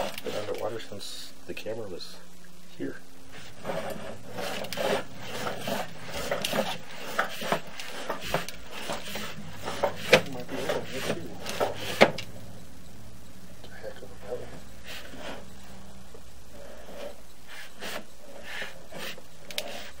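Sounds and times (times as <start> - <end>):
cable scraping inside a drain pipe: 0.0 - 0.9, 3.3 - 12.2, 14.2 - 15.8, 16.5 - 20.0.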